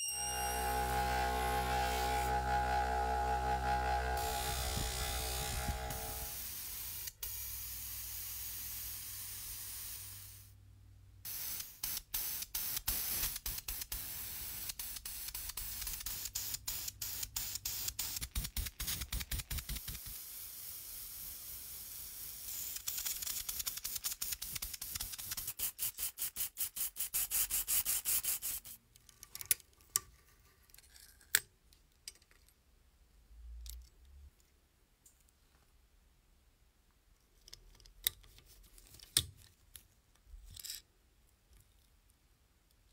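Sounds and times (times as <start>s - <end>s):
buffing wheel hiss and hum: 0.2s - 10.4s
paint spray hiss: 4.2s - 10.5s, 11.3s - 25.8s.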